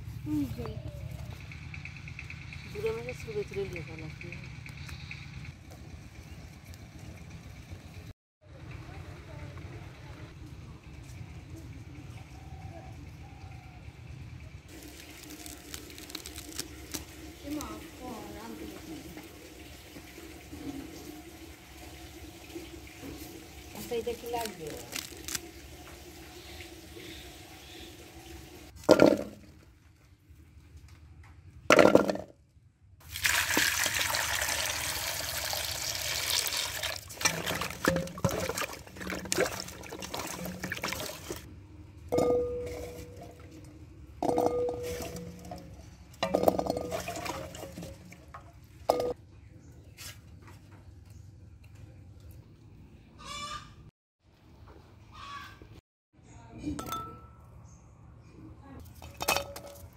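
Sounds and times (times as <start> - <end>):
water splashing in metal basin: 33.0 - 41.5, 42.1 - 49.2, 58.9 - 59.9.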